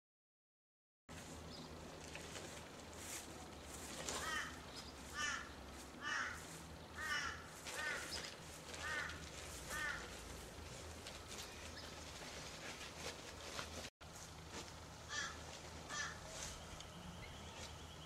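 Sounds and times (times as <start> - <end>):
low steady hum: 1.1 - 18.0
bird calling: 3.4 - 10.5, 15.1 - 18.0.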